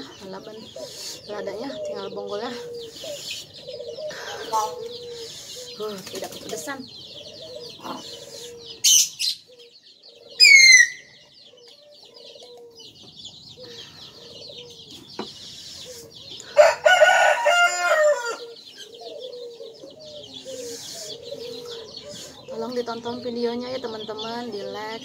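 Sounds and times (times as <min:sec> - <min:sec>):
sharp bird calls: 0:00.0 - 0:25.0
small birds chirping: 0:00.0 - 0:25.0
rooster crowing: 0:16.5 - 0:18.6.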